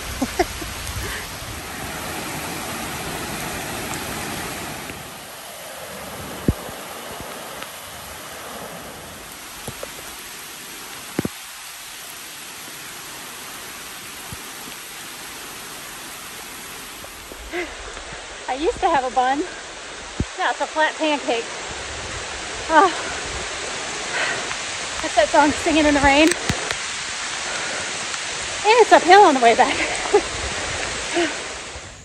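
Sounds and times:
steady rain in forest: 0:00.0 - 0:32.0
faint clicks: 0:25.8 - 0:26.9.

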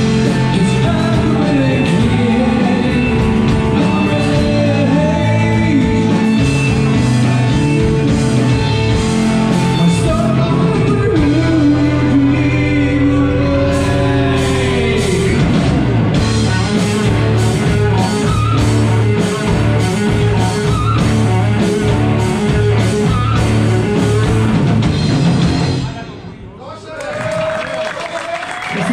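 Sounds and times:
person singing long notes: 0:00.0 - 0:08.8, 0:09.5 - 0:15.7
drum kit beat: 0:00.0 - 0:25.9
distorted electric guitars: 0:00.0 - 0:26.1
bass guitar: 0:00.0 - 0:26.2.

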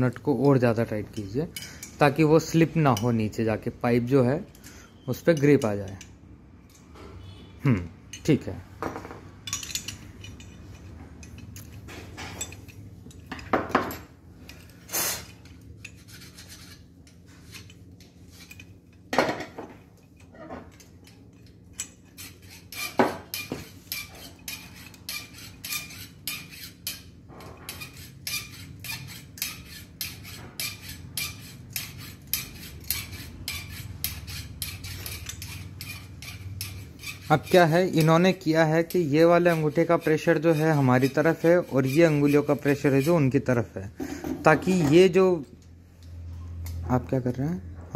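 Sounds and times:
metal tool parts clinking: 0:08.1 - 0:43.3.

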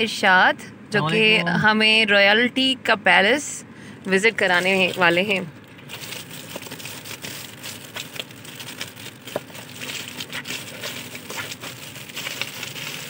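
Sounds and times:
foil gift wrap crinkling: 0:04.4 - 0:13.0.

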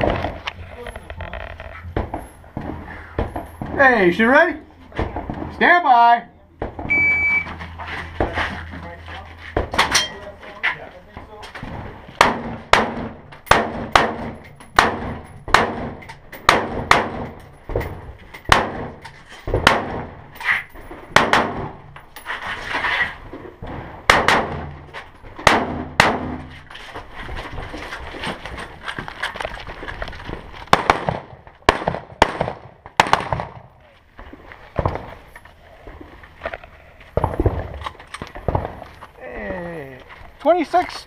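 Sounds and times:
rifle shots echoing: 0:11.7 - 0:17.4, 0:18.5 - 0:19.0, 0:21.1 - 0:21.8, 0:24.0 - 0:24.8, 0:25.4 - 0:26.4, 0:30.7 - 0:33.7, 0:38.4 - 0:38.8.

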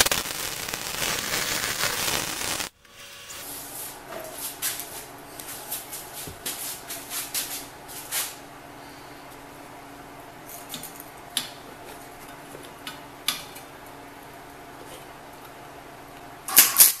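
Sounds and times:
gloves scuffing on metal: 0:03.6 - 0:08.4.

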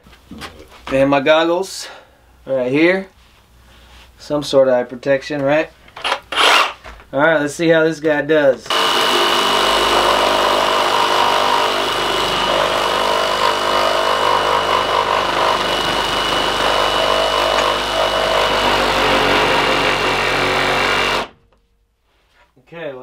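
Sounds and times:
reciprocating saw cutting wood: 0:06.3 - 0:06.8, 0:08.7 - 0:21.4.

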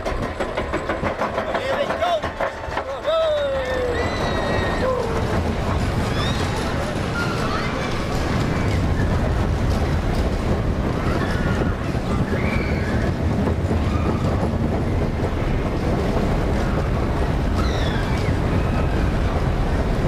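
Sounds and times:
roller coaster rumbling on track: 0:00.0 - 0:20.0
wind rushing over microphone: 0:03.8 - 0:20.0.

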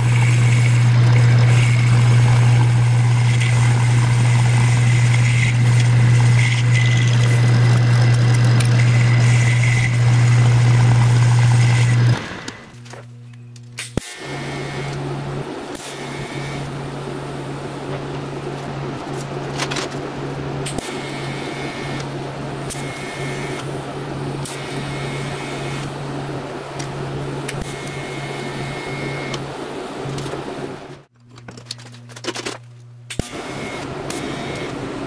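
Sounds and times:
welding arc buzzing with hiss: 0:00.0 - 0:12.9, 0:13.8 - 0:16.9.

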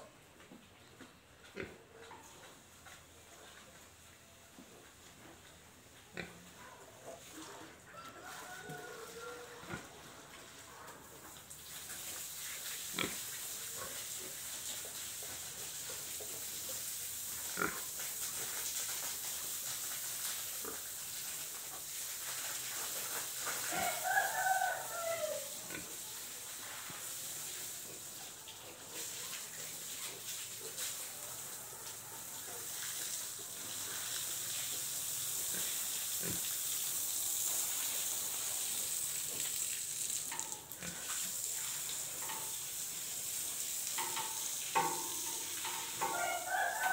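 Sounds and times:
rooster crowing: 0:07.9 - 0:09.8, 0:23.7 - 0:25.6, 0:46.0 - 0:46.9
steady high hiss: 0:32.5 - 0:46.9.

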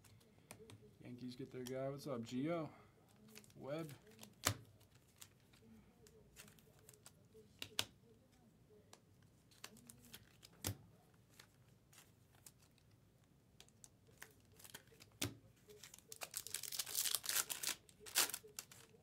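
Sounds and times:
card handling sounds: 0:03.0 - 0:19.0
foil wrapper crinkling: 0:14.1 - 0:19.0.

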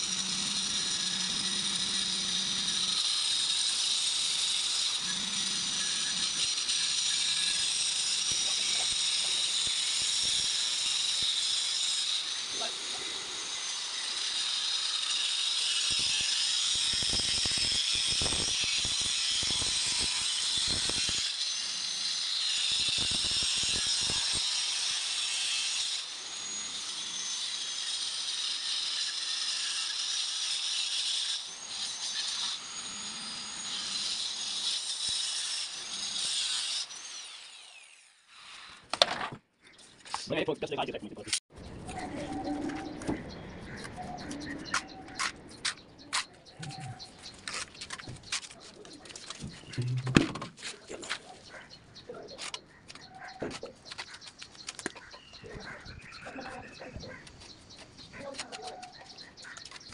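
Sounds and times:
angle grinder cutting stone: 0:00.0 - 0:38.9.

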